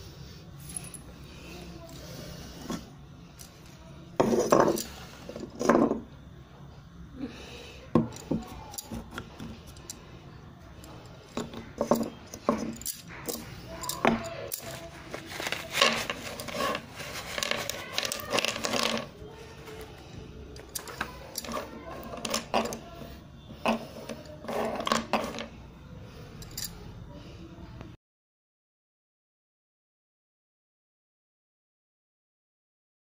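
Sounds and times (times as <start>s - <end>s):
clay pieces clinking and scraping: 1.8s - 6.1s, 8.0s - 10.1s, 10.8s - 25.6s
pencils clattering onto table: 4.2s - 6.0s, 8.0s - 10.0s, 10.8s - 25.6s.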